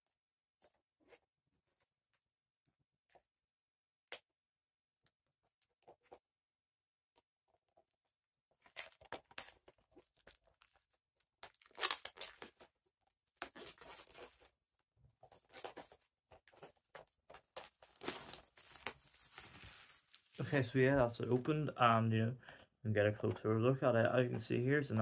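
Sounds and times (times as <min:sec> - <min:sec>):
plastic shrink wrap tearing: 0:11.4 - 0:12.7, 0:17.6 - 0:20.6
plastic crinkling: 0:15.3 - 0:20.6.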